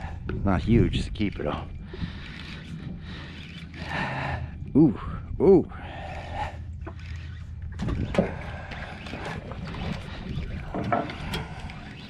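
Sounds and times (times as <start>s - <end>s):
steady low hum: 0.0s - 12.0s
fishing reel cranking: 1.0s - 4.3s, 6.2s - 12.0s
wind on microphone: 7.6s - 12.0s.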